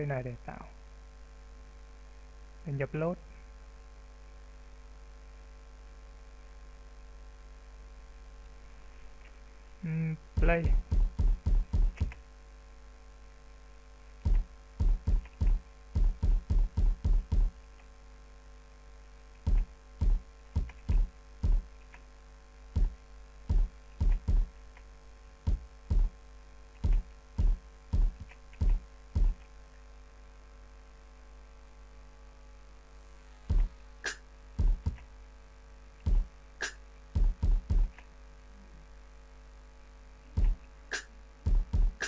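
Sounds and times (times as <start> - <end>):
looping snare drum hits: 10.4 - 12.2, 14.3 - 17.6, 19.5 - 21.7, 22.8 - 24.5, 25.5 - 26.2, 26.8 - 29.4, 33.5 - 35.0, 36.1 - 38.0, 40.4 - 42.0.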